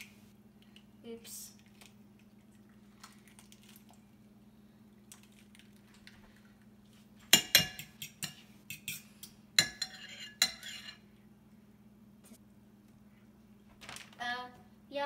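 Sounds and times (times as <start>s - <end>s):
fork beating eggs in bowl: 7.3s - 11.0s.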